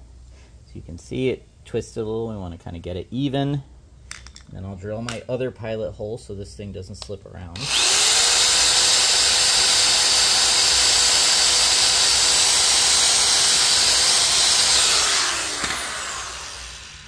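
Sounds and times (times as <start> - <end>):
electric drill boring wood: 7.6 - 17.0.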